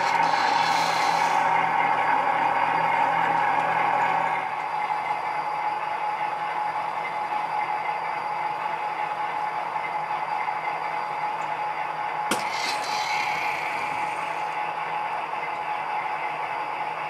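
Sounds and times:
model train hum and hiss: 0:00.0 - 0:17.0
rushing noise: 0:12.4 - 0:14.6.

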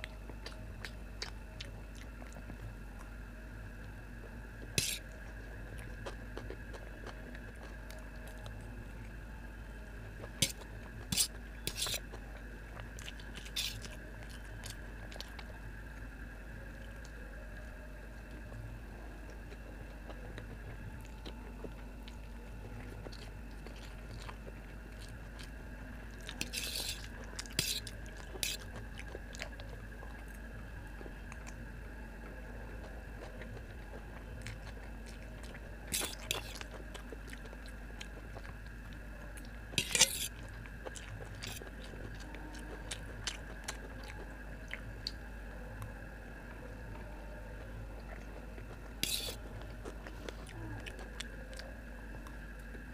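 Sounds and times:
wet chewing: 0:00.0 - 0:03.2, 0:03.8 - 0:52.9
low hum: 0:00.0 - 0:52.9
noodles slurping: 0:10.2 - 0:15.6, 0:20.4 - 0:45.2, 0:47.6 - 0:51.7.

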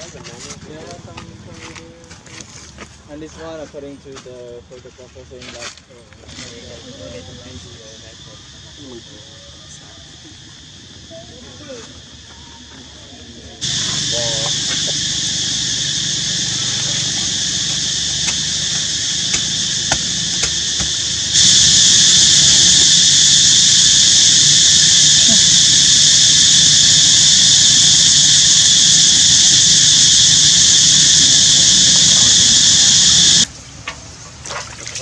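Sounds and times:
insect chorus buzzing: 0:06.4 - 0:33.5.

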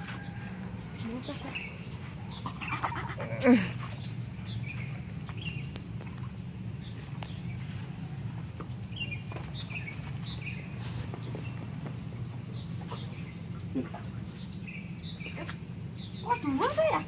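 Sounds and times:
birds chirping: 0:00.0 - 0:17.0
steady low hum: 0:00.0 - 0:17.0.

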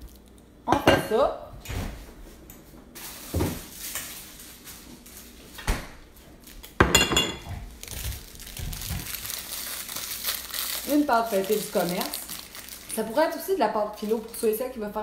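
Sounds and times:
kitchenware knocks: 0:06.8 - 0:07.5
kitchenware clattering and clinking: 0:06.8 - 0:07.7.

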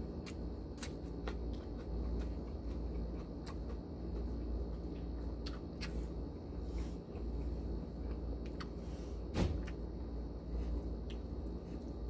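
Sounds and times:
low background hum: 0:00.0 - 0:12.0
man chewing and lip smacking: 0:00.1 - 0:06.2, 0:07.1 - 0:08.8, 0:10.7 - 0:12.0.

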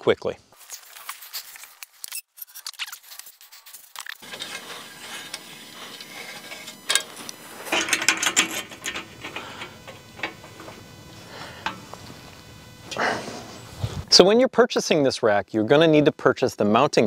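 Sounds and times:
hex key clicking and scraping: 0:02.1 - 0:10.9.

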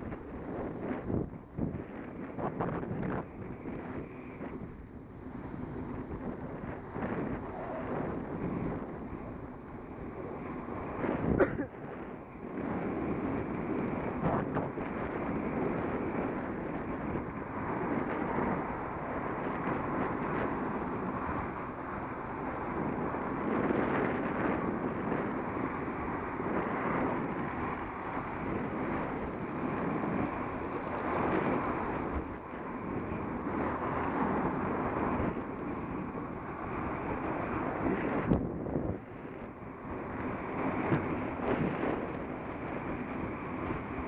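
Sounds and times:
wind buffeting microphone: 0:00.0 - 0:44.0.

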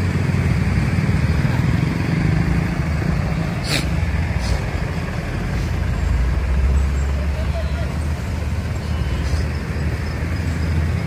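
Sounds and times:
truck engine rumbling: 0:00.0 - 0:11.0
short air hiss: 0:03.6 - 0:04.7.

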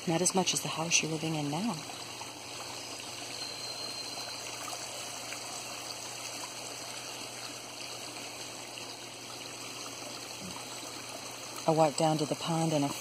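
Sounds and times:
small waterfall rushing: 0:00.0 - 0:13.0.

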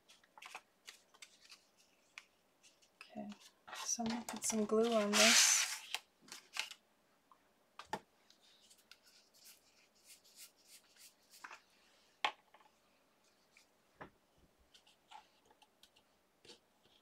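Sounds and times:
paper and card sliding: 0:03.7 - 0:06.6.

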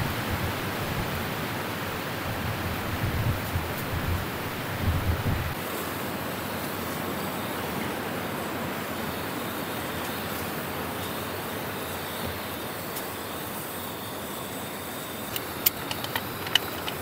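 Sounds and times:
strong wind blowing: 0:00.0 - 0:05.6
wind buffeting on microphone: 0:00.0 - 0:05.6.

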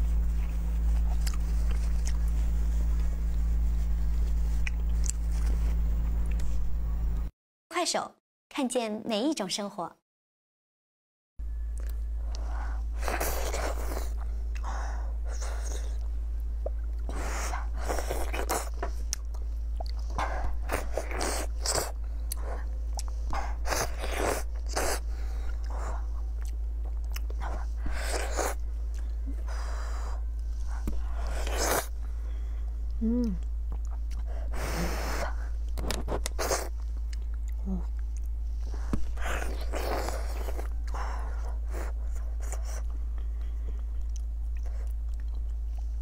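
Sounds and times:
low hum: 0:00.0 - 0:07.3, 0:11.4 - 0:46.0
biting and chewing sticky rice: 0:00.2 - 0:05.6, 0:11.8 - 0:32.2, 0:32.8 - 0:46.0.

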